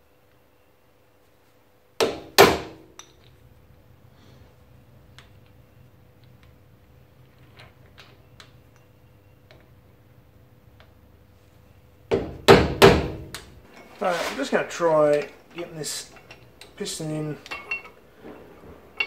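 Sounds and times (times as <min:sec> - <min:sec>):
loud knock: 0:12.1 - 0:13.3.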